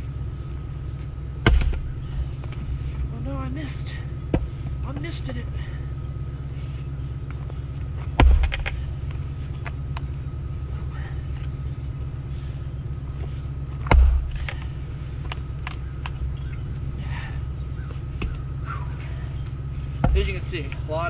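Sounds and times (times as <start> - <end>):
low rumble: 0.0 - 21.0
axe striking firewood: 1.4 - 1.9, 8.1 - 8.8, 13.8 - 14.7.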